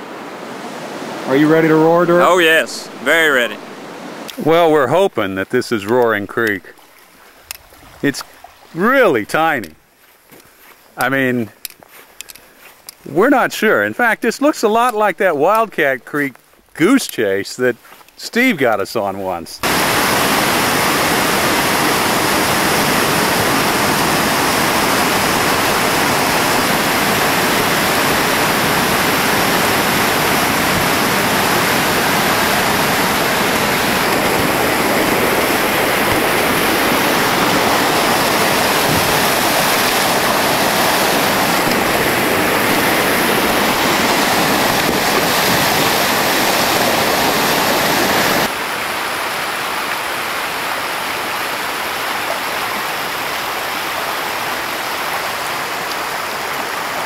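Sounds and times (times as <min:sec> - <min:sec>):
whitewater rushing through rapid: 0:00.0 - 0:06.8, 0:18.3 - 0:57.0.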